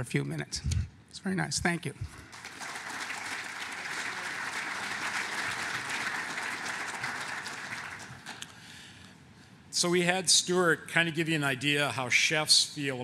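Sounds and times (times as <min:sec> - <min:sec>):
audience applauding: 0:02.2 - 0:08.5.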